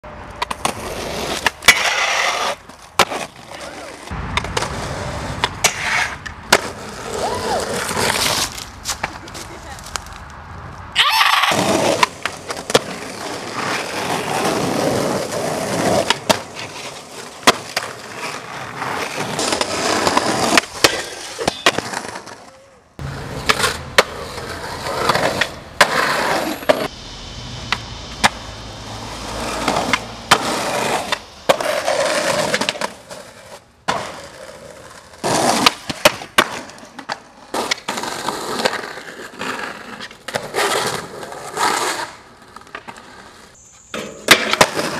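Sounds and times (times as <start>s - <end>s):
skateboard wheels rolling on pavement: 0.0s - 44.9s
skateboard clacks: 0.3s - 10.0s, 11.2s - 26.9s, 29.4s - 43.3s, 43.9s - 44.9s.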